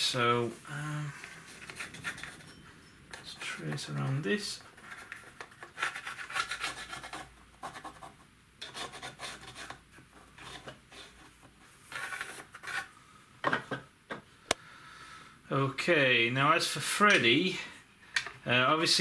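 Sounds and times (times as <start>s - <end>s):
pencil scratching: 1.5s - 2.6s, 4.8s - 9.8s.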